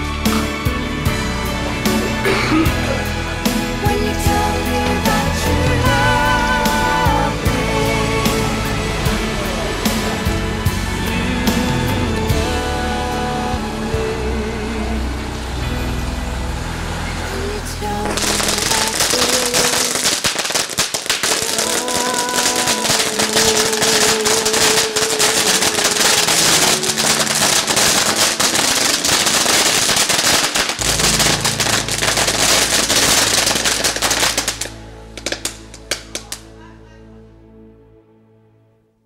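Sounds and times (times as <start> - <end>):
background music: 0.0 - 39.0
firecrackers crackling: 18.0 - 36.5.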